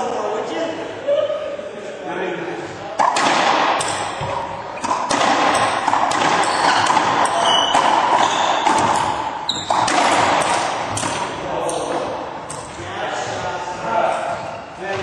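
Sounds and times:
racquetball ball cracking off walls: 3.0s - 12.7s
shoe squeaks on hardwood floor: 6.4s - 6.8s, 7.4s - 9.9s.

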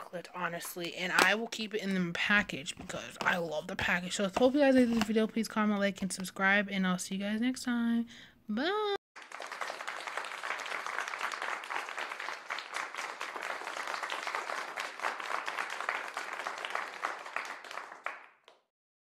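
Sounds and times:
crowd applause: 9.2s - 18.6s.

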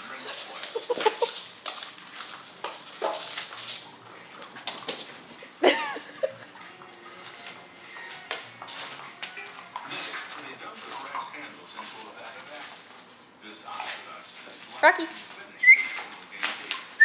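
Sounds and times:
bubble wrap crackling: 0.0s - 4.0s.

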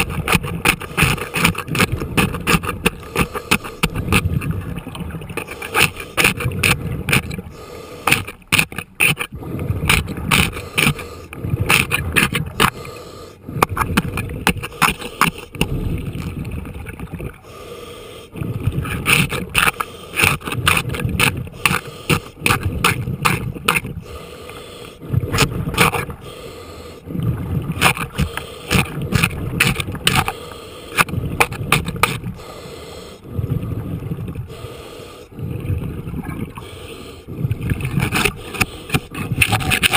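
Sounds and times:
diver breathing through regulator: 0.0s - 4.6s, 5.4s - 16.3s, 17.3s - 39.9s
bubbles rumbling underwater: 3.9s - 5.5s, 9.3s - 10.6s, 11.4s - 12.7s, 15.6s - 17.4s, 18.4s - 19.6s, 25.0s - 26.2s, 27.1s - 30.2s, 33.3s - 34.5s, 35.4s - 36.6s, 37.3s - 38.4s.

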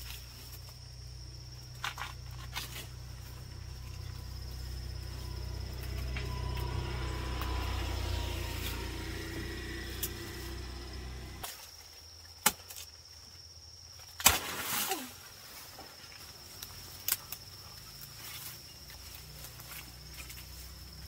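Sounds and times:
high insect trill: 0.0s - 21.0s
low rumble: 1.6s - 11.4s.

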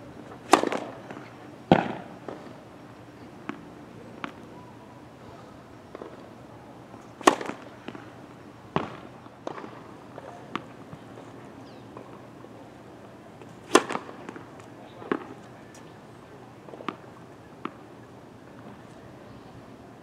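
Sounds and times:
tennis ball pops: 0.5s - 2.4s, 7.2s - 8.0s, 13.6s - 14.4s.

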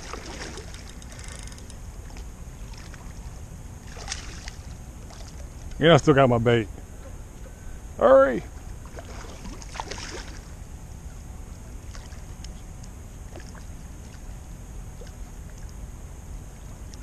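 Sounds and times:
fishing reel clicking: 0.7s - 1.8s.

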